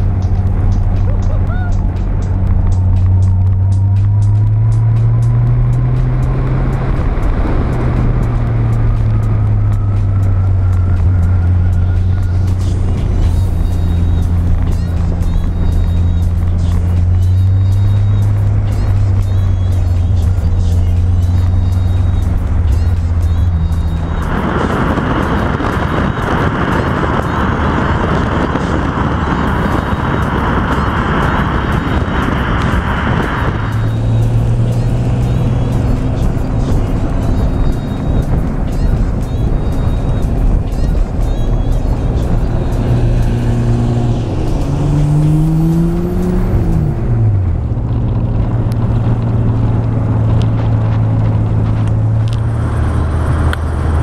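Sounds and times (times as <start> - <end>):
sharp ticks: 0.0 - 5.3
car road noise: 0.0 - 54.0
steady engine drone: 0.0 - 54.0
wind rush: 0.0 - 54.0.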